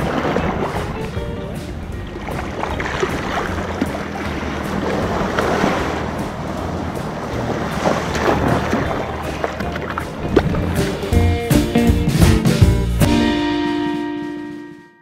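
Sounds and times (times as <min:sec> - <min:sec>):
wind buffeting microphone: 0:00.0 - 0:11.2
low hum: 0:00.2 - 0:11.3
small waves breaking on sand: 0:02.2 - 0:10.4.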